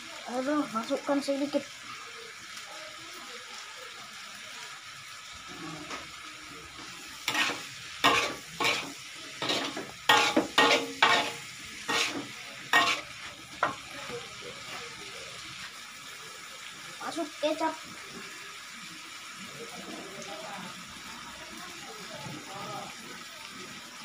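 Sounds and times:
frying sizzle: 0.0s - 24.0s
metal spatula scraping a wok: 7.2s - 13.8s.

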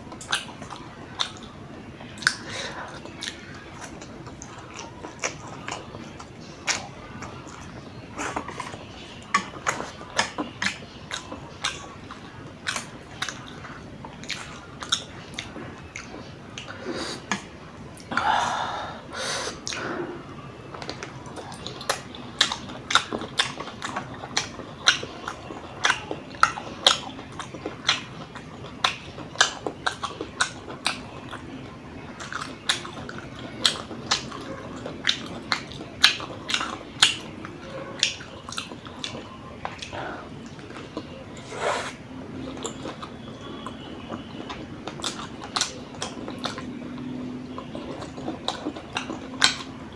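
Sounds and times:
wet chewing and lip-smacking: 0.0s - 18.4s, 19.6s - 49.9s
loud mouth sound: 41.4s - 42.0s.

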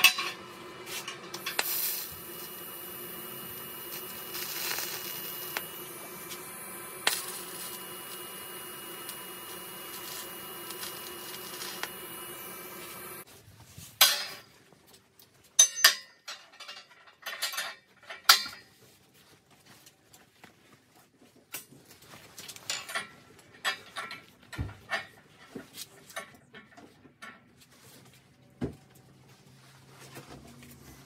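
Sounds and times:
welding arc: 0.0s - 13.3s.

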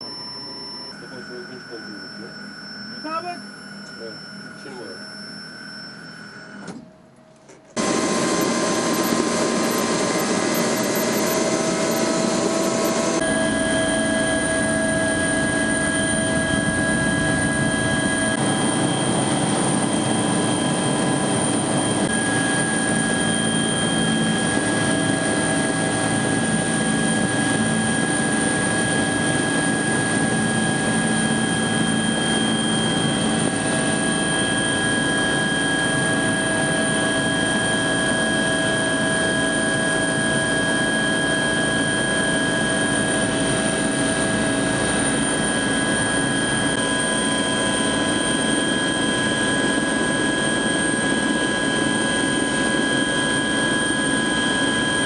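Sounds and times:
high-pitched whines: 0.0s - 6.8s, 7.8s - 55.0s
helicopter engine and rotor drone: 0.0s - 6.9s, 7.7s - 55.0s.

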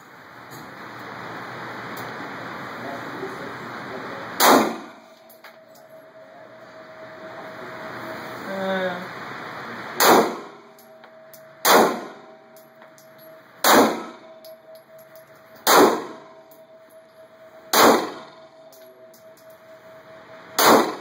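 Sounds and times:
pistol shots echoing indoors: 4.4s - 5.2s, 10.0s - 16.8s, 17.6s - 19.3s, 20.5s - 21.0s.

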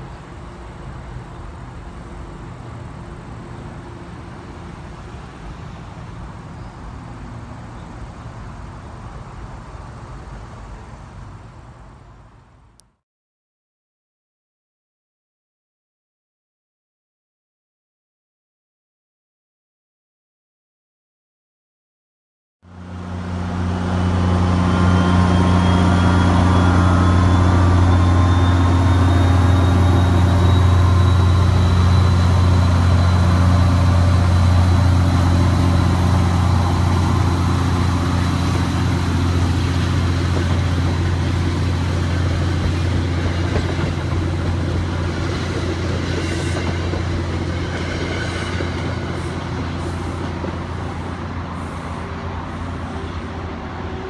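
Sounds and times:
train coaches rolling by: 0.0s - 12.6s, 22.7s - 54.0s
diesel locomotive engine drone: 0.0s - 12.9s, 22.6s - 54.0s
rising engine whine: 22.7s - 54.0s.

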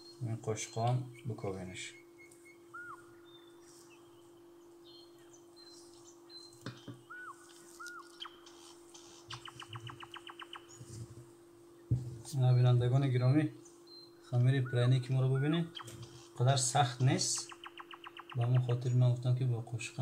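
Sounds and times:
bird trill: 0.0s - 10.9s, 13.6s - 19.0s
steady hum: 0.0s - 20.0s
bird chirps and whistles: 1.9s - 4.2s, 4.9s - 8.7s, 9.3s - 10.8s, 17.3s - 18.7s.

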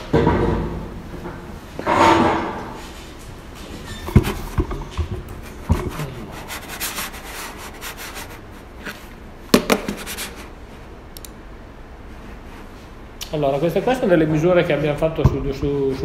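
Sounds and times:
rubbing and scraping handling noise: 1.8s - 10.8s
sharp knock: 9.5s - 10.2s.

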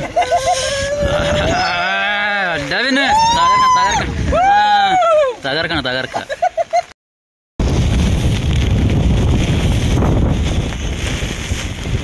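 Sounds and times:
wind buffeting microphone: 0.0s - 5.0s, 7.6s - 12.0s.

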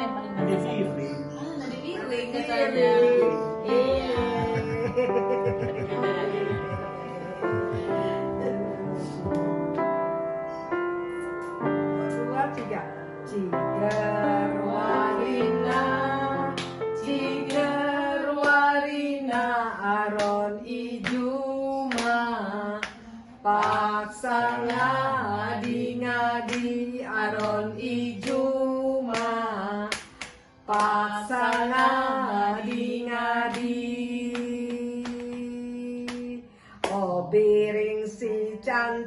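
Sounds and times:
women singing with vibrato: 1.8s - 5.2s, 13.4s - 39.0s
keyboard chords and bass: 3.3s - 15.0s
sharp beats or claps: 29.1s - 32.0s.

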